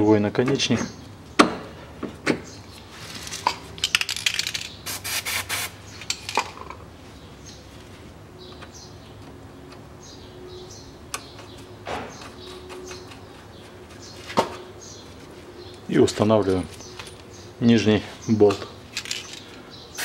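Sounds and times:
steel nuts clinking and rattling: 3.2 - 4.8, 18.9 - 19.6.

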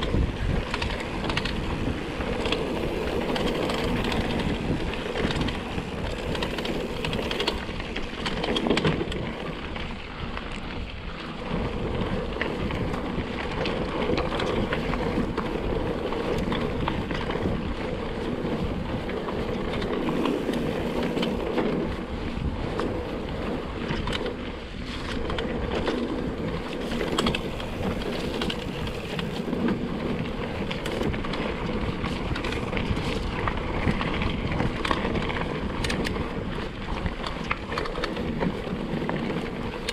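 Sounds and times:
bike rattling and clicking: 0.0 - 39.9
bike tyre rumble: 0.0 - 39.9
wind on microphone: 0.0 - 39.9.

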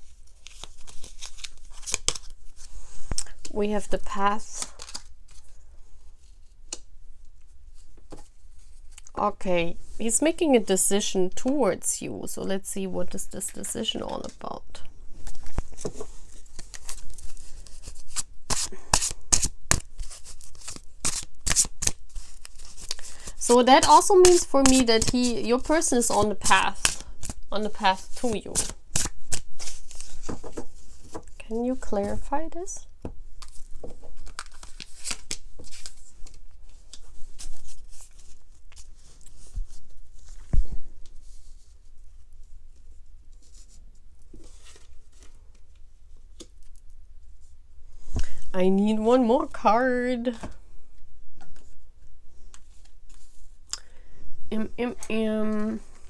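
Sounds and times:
cards being shuffled: 0.0 - 5.6, 15.2 - 31.4, 33.4 - 41.3.

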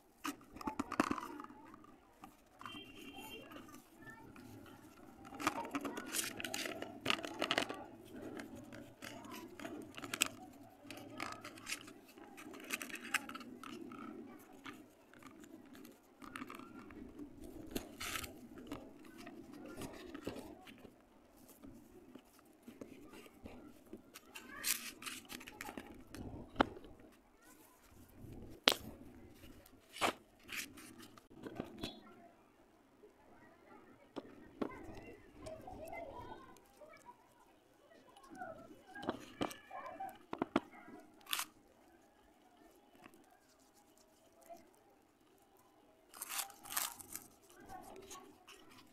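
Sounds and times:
wet clay squelching: 38.2 - 48.9.

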